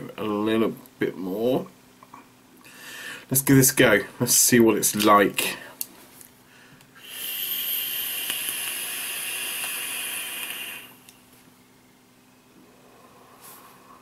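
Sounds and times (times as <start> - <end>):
hiss of air through vaporiser: 7.0 - 11.1.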